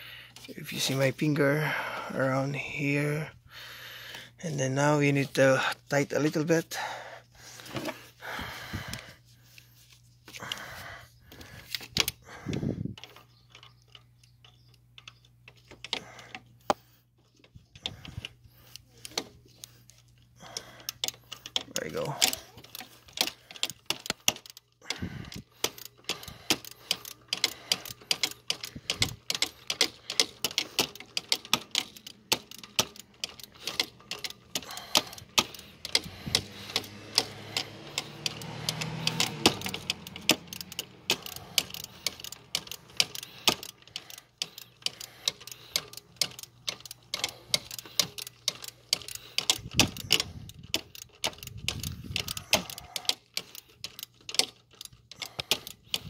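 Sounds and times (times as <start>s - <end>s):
ratchet wrench clicking: 17.8s - 56.0s.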